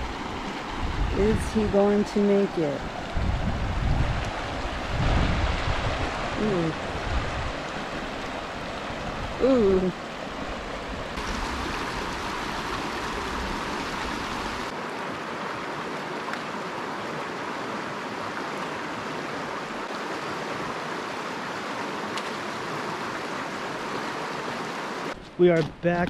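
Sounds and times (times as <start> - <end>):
river rushing over rocks: 10.0 - 25.2.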